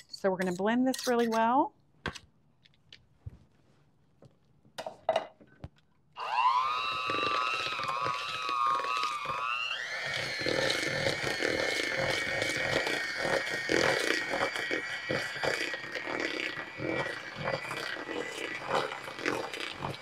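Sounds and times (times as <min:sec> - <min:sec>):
electric hand mixer motor whine: 0:06.2 - 0:20.0.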